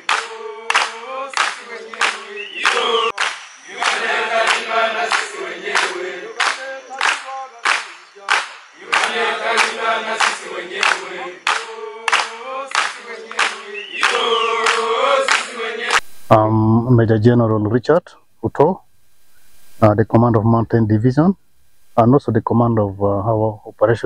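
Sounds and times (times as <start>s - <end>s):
voices singing in chorus: 0.0s - 16.1s.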